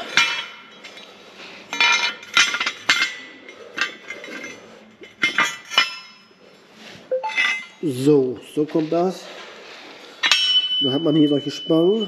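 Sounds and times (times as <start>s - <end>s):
steel segments clanking: 7.1s - 8.0s.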